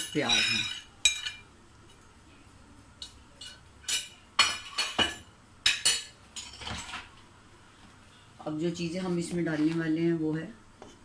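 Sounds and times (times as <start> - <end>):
metal spoon clinking on plate and pot: 0.0 - 1.5, 3.0 - 7.0.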